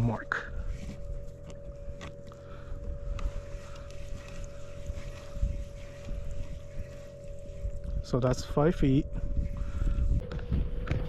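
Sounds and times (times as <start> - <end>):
wind buffeting microphone: 2.7 - 11.0.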